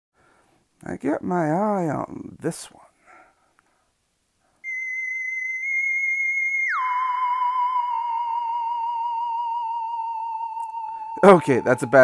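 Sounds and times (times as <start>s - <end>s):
theremin-style tone: 4.6s - 12.0s.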